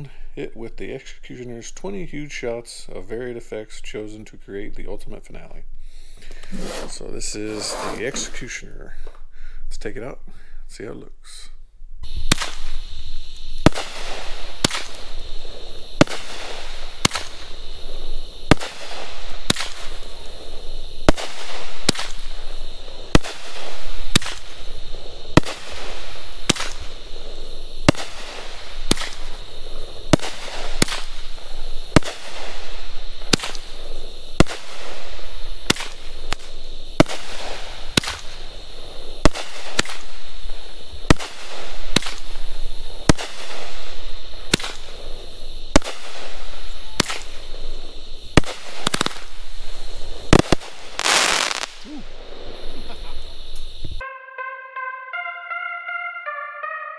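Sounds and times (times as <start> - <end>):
noisy hiss: 0.0 - 54.0
firework bangs: 12.0 - 54.0
fireworks breaking overhead: 12.0 - 54.0.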